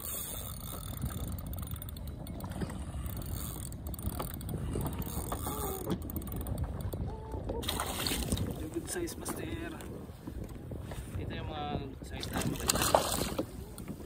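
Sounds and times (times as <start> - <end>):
fishing reel gears ticking: 0.0 - 7.0.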